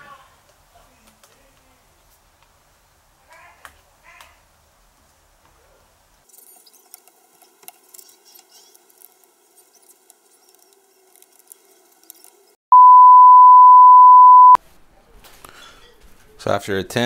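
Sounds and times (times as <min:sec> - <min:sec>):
loud electronic bleep tone: 0:12.7 - 0:14.6.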